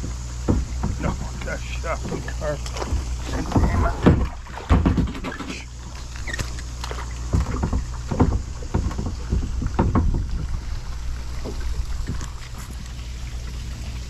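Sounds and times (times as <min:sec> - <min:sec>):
paddle knocking plastic boat: 0:00.0 - 0:13.0
low steady rumble: 0:00.0 - 0:14.0
paddle splashing water: 0:00.0 - 0:14.0.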